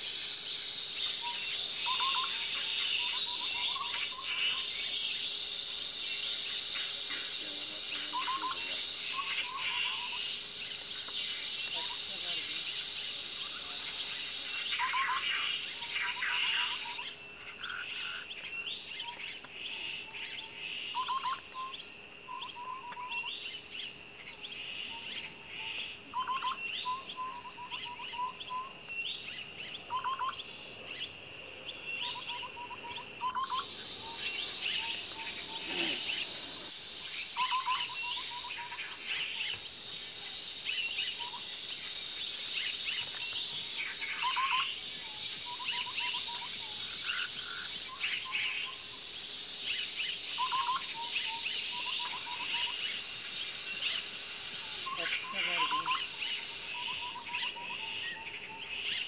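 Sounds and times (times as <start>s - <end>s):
mynas chirping: 0.0s - 59.0s.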